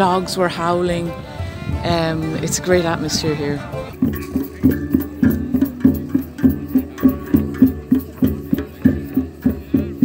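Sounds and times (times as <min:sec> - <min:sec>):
frame drums beaten in rhythm: 0:03.9 - 0:10.0.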